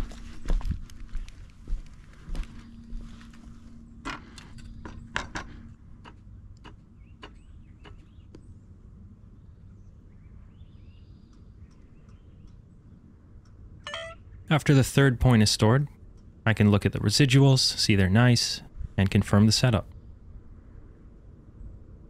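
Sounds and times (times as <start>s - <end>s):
faint high chirps: 13.9s - 14.3s.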